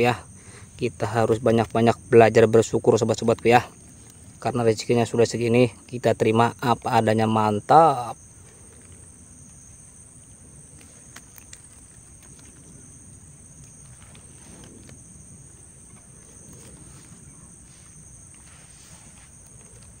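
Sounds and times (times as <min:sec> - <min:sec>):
insects chirring: 0:00.0 - 0:20.0
low background hum: 0:00.0 - 0:20.0
faint clicks: 0:10.7 - 0:12.8.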